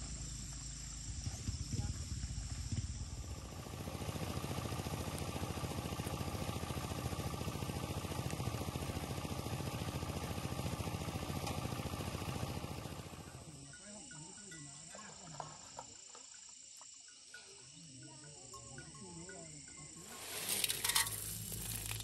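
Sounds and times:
rice thresher engine running: 1.6 - 13.4, 20.0 - 22.0.

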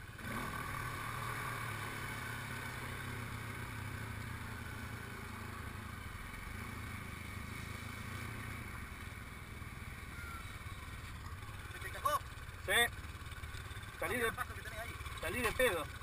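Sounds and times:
quad bike engine running: 0.0 - 16.0.

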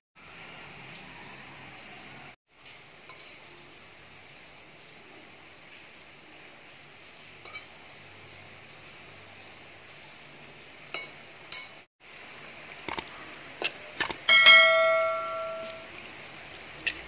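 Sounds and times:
sharp clicks: 12.9 - 13.1, 14.0 - 14.3
ladle tapping metal pot: 14.0 - 15.9.

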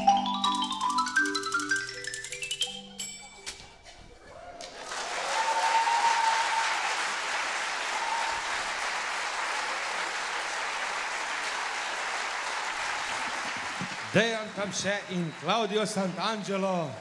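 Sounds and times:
crowd cheering: 4.3 - 17.0
audience applauding: 4.5 - 17.0.

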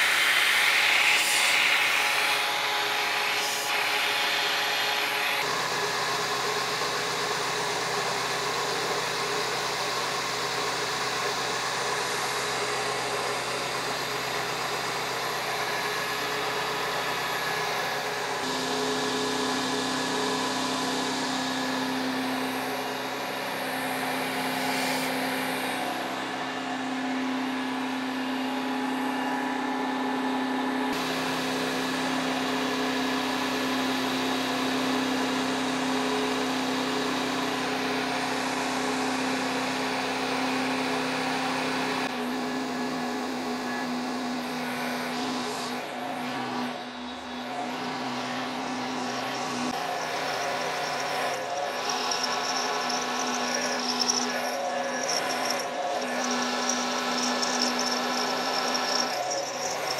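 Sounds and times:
milling machine cutting metal: 45.7 - 59.9.

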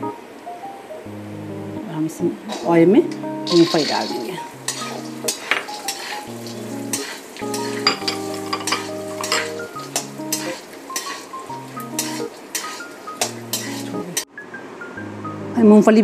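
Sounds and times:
soft background music: 0.0 - 16.0
peanuts frying in oil: 2.5 - 14.3
metal spatula scraping a pan: 3.5 - 14.2.

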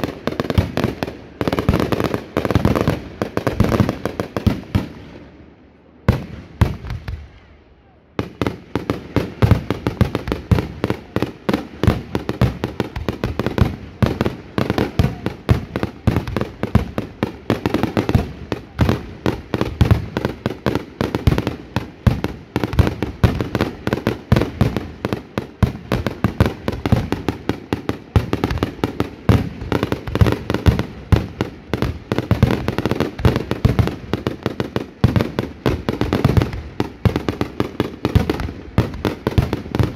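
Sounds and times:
fireworks bangs and cracks: 0.0 - 5.4, 6.0 - 7.4, 8.2 - 39.9.

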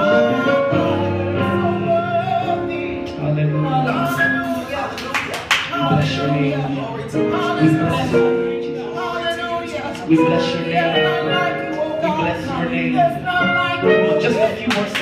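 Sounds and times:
backing vocalists: 0.0 - 5.0
man singing into a microphone: 0.0 - 5.0, 5.6 - 15.0
keyboard accompaniment: 0.0 - 15.0.

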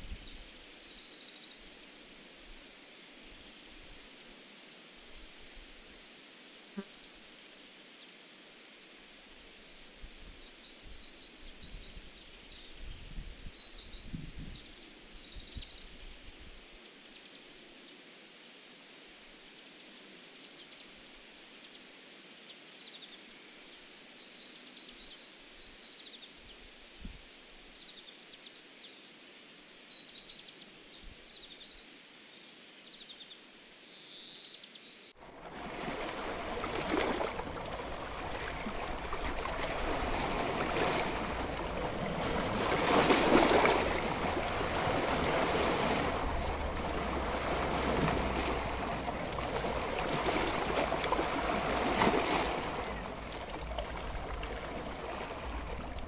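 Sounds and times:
rushing water: 35.2 - 56.0.

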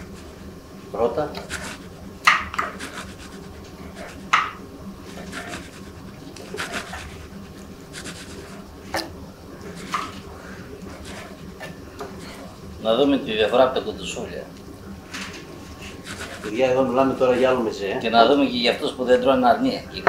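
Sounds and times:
knife scraping through meat: 1.4 - 2.0, 2.6 - 4.4, 5.1 - 8.7, 10.9 - 11.6, 15.8 - 16.5.

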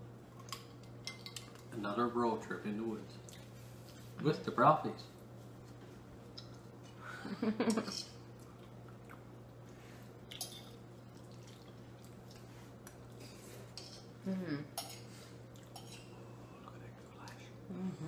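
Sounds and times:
forks scraping on plates: 13.2 - 14.1, 14.8 - 16.2.

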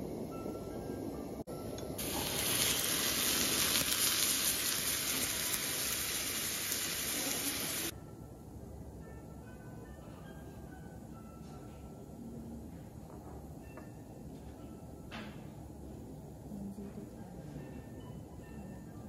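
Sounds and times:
broth sizzling in skillet: 2.0 - 7.9.

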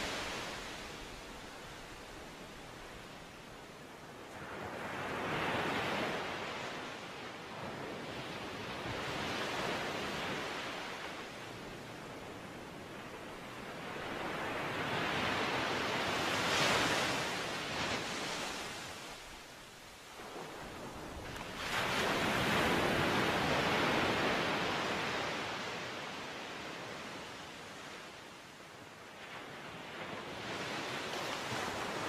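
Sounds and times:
rushing outdoor noise: 0.0 - 2.4.

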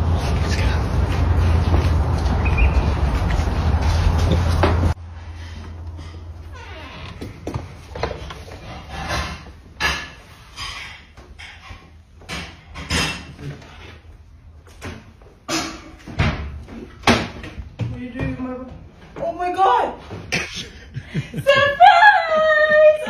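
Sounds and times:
knocks and rustles: 3.0 - 5.0.

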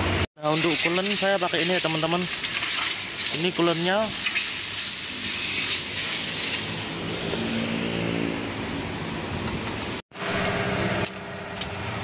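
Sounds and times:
engine running: 6.8 - 12.0
motor hum: 6.9 - 12.0.

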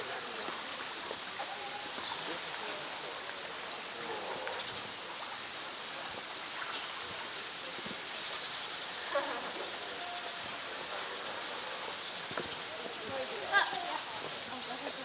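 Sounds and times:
running water rushing: 0.0 - 15.0.

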